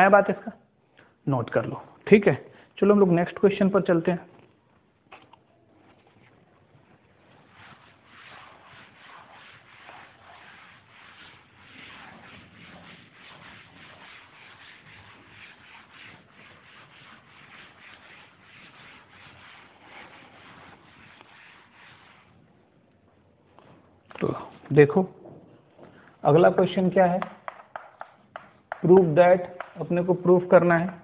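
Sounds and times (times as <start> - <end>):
cloth rubbing on chalkboard: 5.7 - 22.8.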